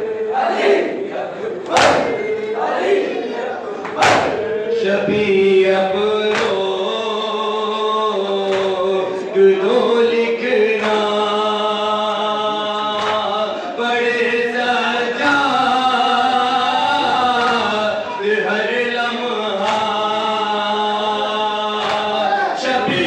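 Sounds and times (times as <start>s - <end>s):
men chanting a lament: 0.0s - 23.0s
chest-beating slaps: 1.6s - 2.5s, 3.8s - 4.6s, 6.3s - 6.7s, 8.5s - 8.8s, 13.0s - 13.3s, 21.8s - 22.2s.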